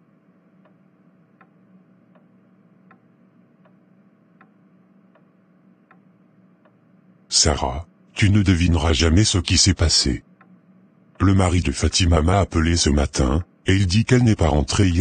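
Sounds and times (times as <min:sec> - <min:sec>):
faint room hum: 0:00.0 - 0:15.0
wall clock ticking: 0:00.6 - 0:06.8.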